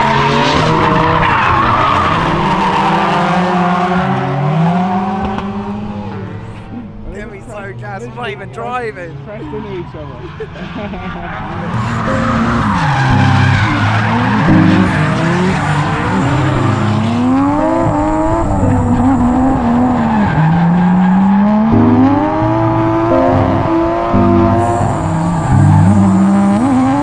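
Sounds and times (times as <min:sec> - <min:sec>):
car engine revving hard: 0:00.0 - 0:07.0, 0:10.2 - 0:27.0
tyres squealing on tarmac: 0:07.6 - 0:17.6, 0:18.7 - 0:22.2.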